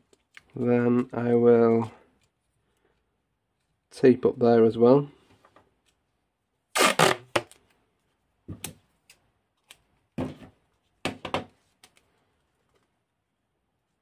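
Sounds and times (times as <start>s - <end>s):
tape pulled off roll: 6.7s - 7.6s.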